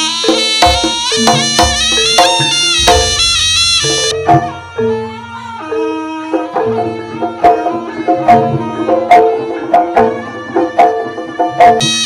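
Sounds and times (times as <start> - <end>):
hand drum strokes: 0.0 - 5.2
ringing metal percussion: 0.0 - 12.0.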